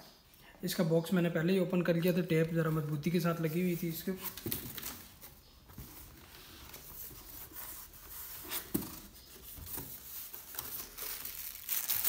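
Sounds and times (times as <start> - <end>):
plastic packaging rustling: 8.2 - 12.0.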